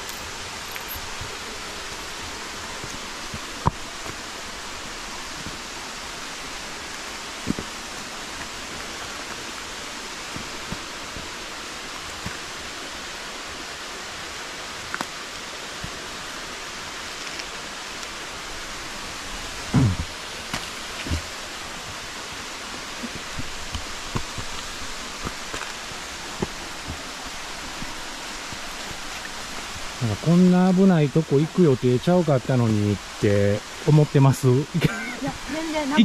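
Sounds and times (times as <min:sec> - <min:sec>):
stream rushing: 0:00.0 - 0:36.0.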